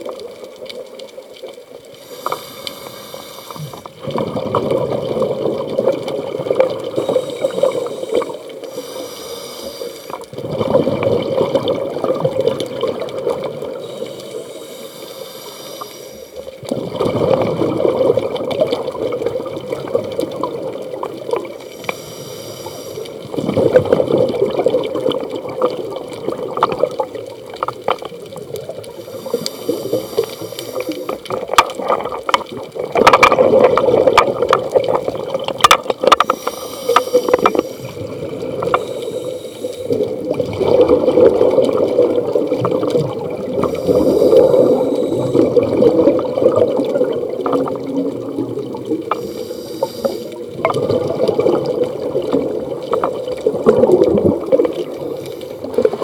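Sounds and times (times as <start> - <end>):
exhaled bubbles gurgling: 0.0 - 56.0
regulator hiss: 1.9 - 3.9, 7.0 - 10.2, 13.8 - 16.5, 21.6 - 23.3, 29.0 - 31.3, 36.2 - 38.1, 38.7 - 40.1, 43.6 - 45.5, 49.1 - 50.4.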